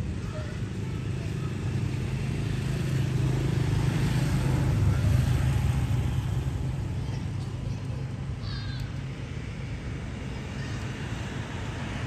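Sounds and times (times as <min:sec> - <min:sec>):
vehicle engine passing: 0:00.7 - 0:07.3.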